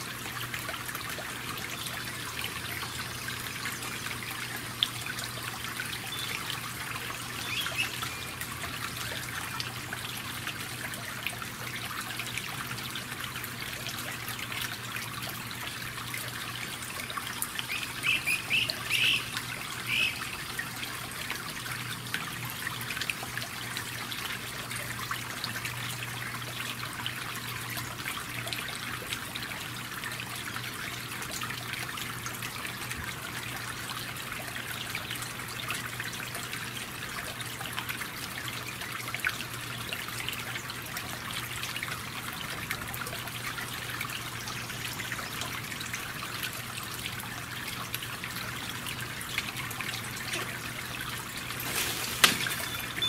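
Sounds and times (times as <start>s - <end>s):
bird calls: 7.4s - 8.3s, 17.7s - 20.4s
rain falling: 51.3s - 53.0s.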